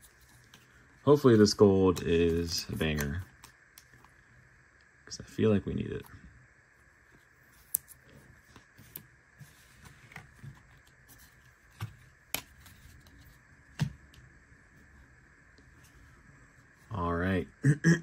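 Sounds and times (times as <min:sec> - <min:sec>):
cards rustling: 0:00.0 - 0:04.2, 0:07.1 - 0:13.9.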